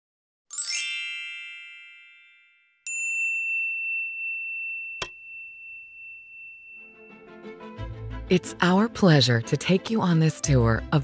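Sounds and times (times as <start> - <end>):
bright chime: 0.5 - 7.3
high ding: 0.7 - 7.3.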